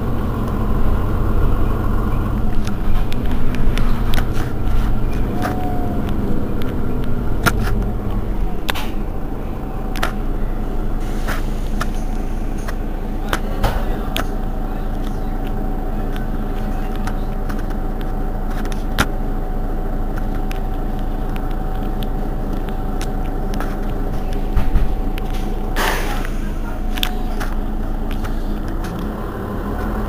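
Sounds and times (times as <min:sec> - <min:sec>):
bus engine idling: 0:00.0 - 0:30.0
steady whine: 0:00.0 - 0:30.0.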